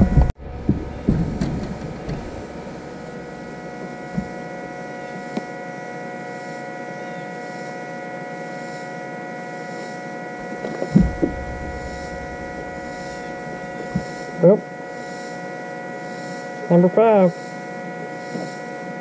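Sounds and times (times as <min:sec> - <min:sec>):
steady electrical hum: 0:00.0 - 0:16.4.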